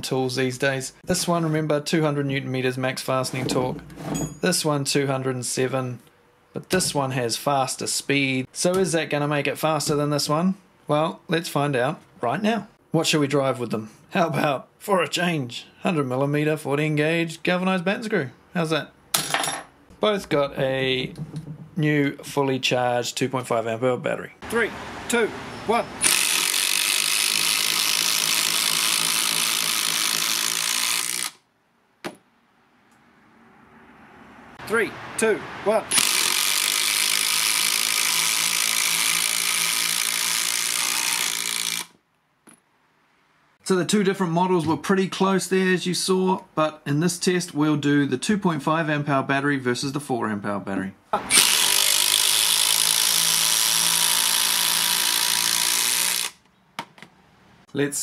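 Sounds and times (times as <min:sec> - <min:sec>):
impact drivers hammering screws: 0:26.0 - 0:31.4, 0:35.9 - 0:42.0, 0:51.3 - 0:56.4.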